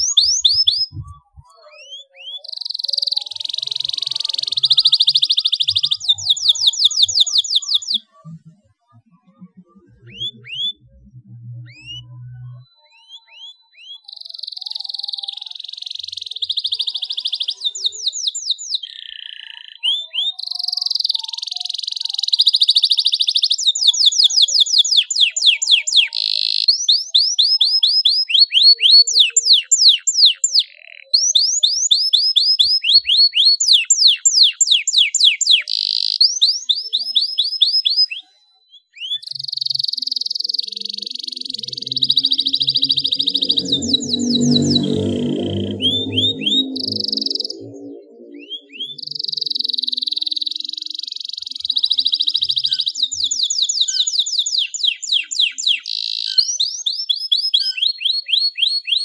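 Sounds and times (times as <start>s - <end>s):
canary singing: 0.0s - 8.5s, 9.3s - 59.0s.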